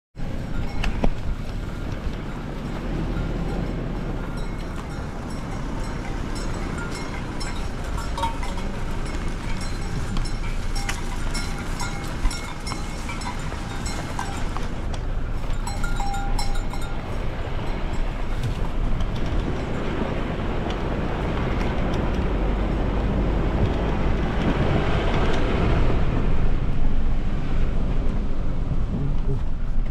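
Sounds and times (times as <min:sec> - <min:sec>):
car rolling on gravel: 0:00.2 - 0:29.9
light clinks: 0:03.1 - 0:14.8, 0:15.4 - 0:19.9.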